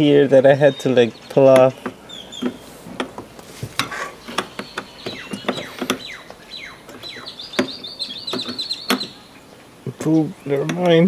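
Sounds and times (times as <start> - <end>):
bird chirping: 0.0 - 11.0
plastic latch clicks and knocks: 7.6 - 9.1.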